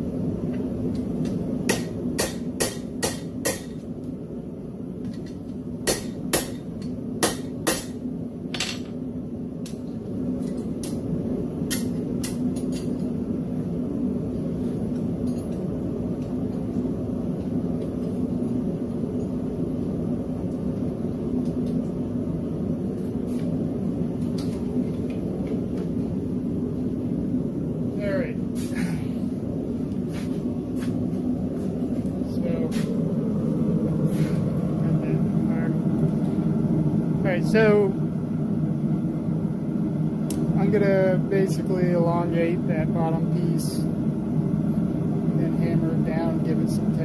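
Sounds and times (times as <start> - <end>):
low drone of shop equipment: 0.0 - 47.0
hammer striking spike on anvil: 1.7 - 3.8, 5.8 - 8.0.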